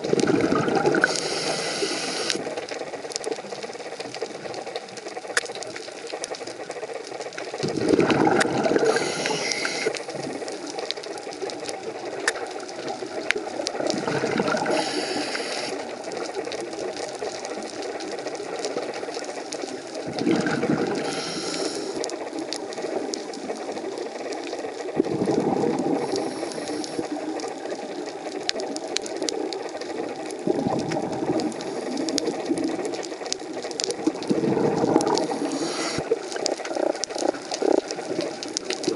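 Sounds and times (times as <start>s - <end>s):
exhaled air bubbling underwater: 0.0s - 38.9s
faint clicks: 0.1s - 38.9s
regulator inhale hiss: 1.0s - 2.4s, 8.7s - 10.0s, 14.5s - 15.9s, 20.9s - 22.1s, 26.0s - 27.3s, 35.2s - 36.1s.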